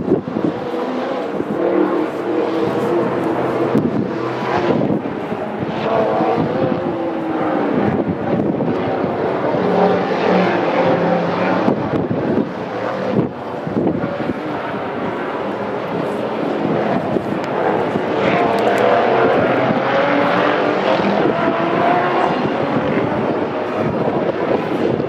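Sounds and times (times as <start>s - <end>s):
distant engines droning: 0.0s - 25.0s.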